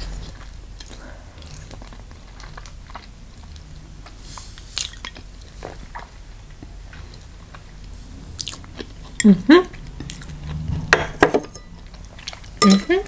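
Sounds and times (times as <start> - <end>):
chewing and biting: 0.2 - 9.2, 9.8 - 10.7.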